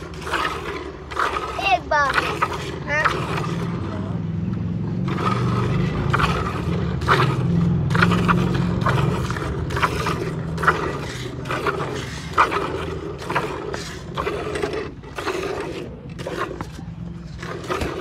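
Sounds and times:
milk squirting into a steel bucket: 0.0 - 4.0
steady low hum: 0.0 - 18.0.

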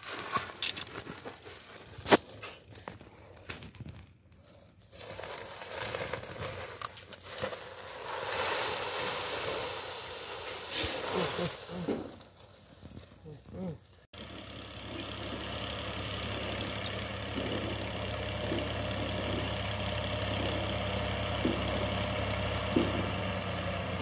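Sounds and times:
sack rustling and crinkling: 0.0 - 14.1
hiss of pouring seed: 7.8 - 11.8.

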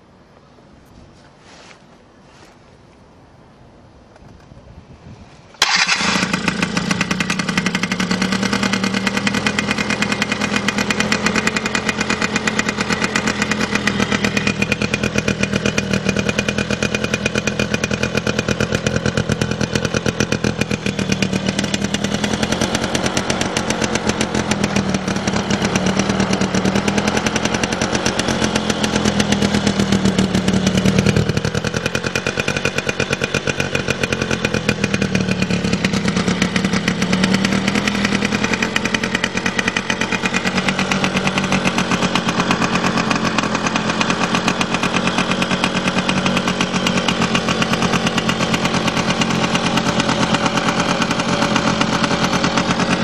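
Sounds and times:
scooter engine starting and idling: 5.6 - 53.0.

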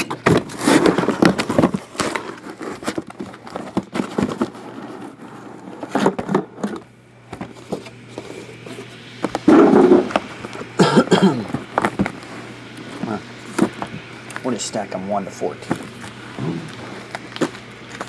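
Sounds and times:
cardboard boxes scraping and knocking: 0.0 - 6.8.

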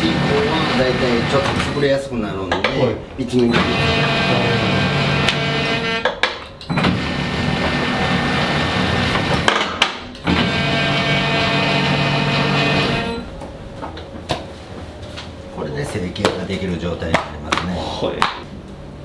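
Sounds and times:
dough sheeter motor running: 0.0 - 1.8, 3.6 - 6.0, 6.8 - 9.6, 10.2 - 13.2
motor clunk: 3.4 - 14.5.

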